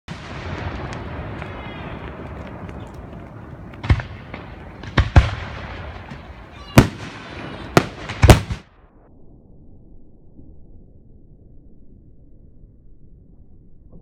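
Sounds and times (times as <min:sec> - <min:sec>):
fireworks rumble and crackle: 0:00.1 - 0:08.9.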